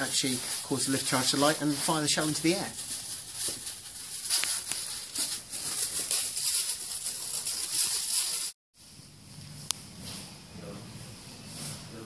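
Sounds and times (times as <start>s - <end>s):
plastic bags rustling: 0.0s - 8.6s.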